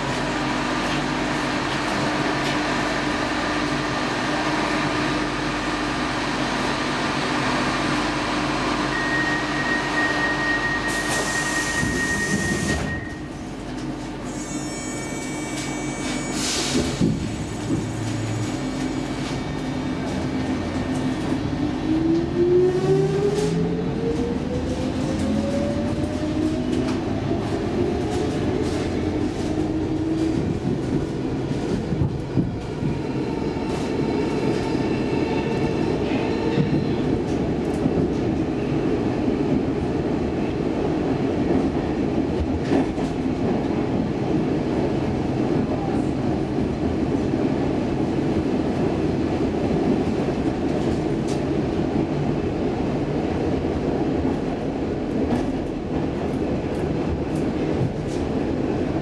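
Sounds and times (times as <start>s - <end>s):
train wheels rumbling on rail: 0.0s - 59.0s
high squeal: 14.3s - 16.8s.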